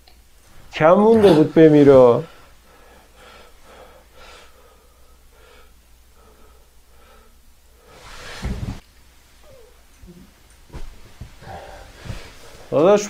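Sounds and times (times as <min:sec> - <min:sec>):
person breathing: 0:02.2 - 0:08.5, 0:11.4 - 0:12.7.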